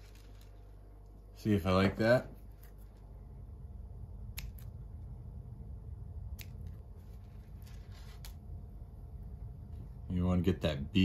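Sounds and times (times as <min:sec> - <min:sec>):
faint rustling of hands: 0:00.0 - 0:01.3, 0:02.3 - 0:03.2, 0:06.5 - 0:08.4.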